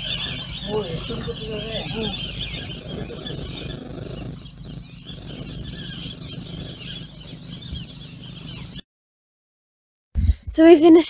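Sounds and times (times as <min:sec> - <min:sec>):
birds chirping and calling: 0:00.0 - 0:08.8
low steady rumble: 0:00.0 - 0:08.8.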